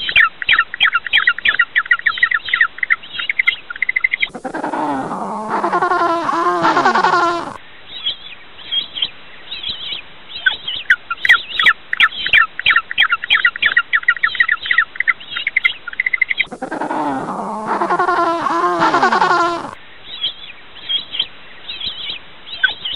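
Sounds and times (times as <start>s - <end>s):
penguin deep call: 4.3s - 7.6s, 16.5s - 19.8s
penguin high chirps: 4.3s - 7.6s, 16.5s - 19.8s.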